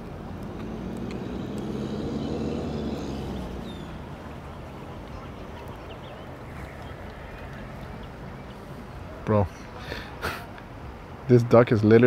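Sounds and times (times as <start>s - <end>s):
engine passing by: 0.0s - 8.8s.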